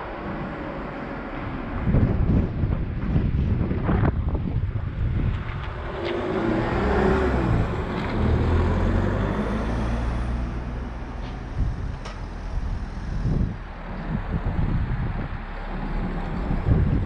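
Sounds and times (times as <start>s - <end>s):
car driving past: 5.5s - 17.0s.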